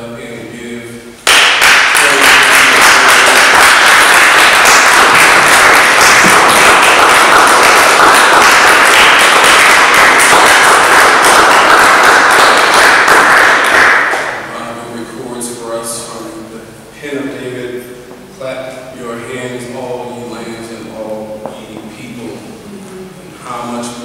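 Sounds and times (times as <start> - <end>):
congregation applauding: 1.2 - 14.5.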